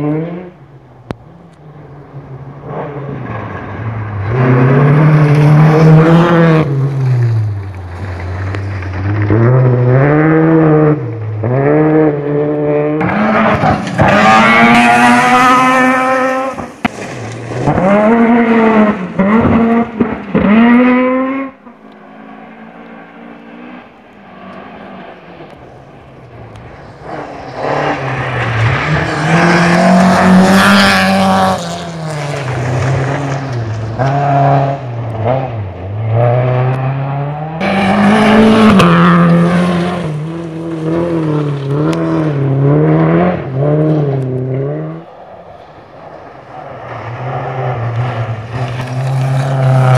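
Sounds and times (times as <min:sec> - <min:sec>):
rally car engine revving: 0:00.0 - 0:49.9
car passing by: 0:12.6 - 0:49.9.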